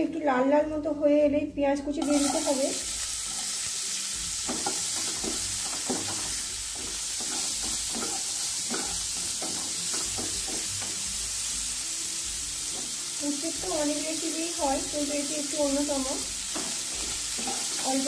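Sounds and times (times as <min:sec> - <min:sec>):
onions sizzling in oil: 0:02.0 - 0:18.0
spatula scraping pan: 0:16.5 - 0:18.0.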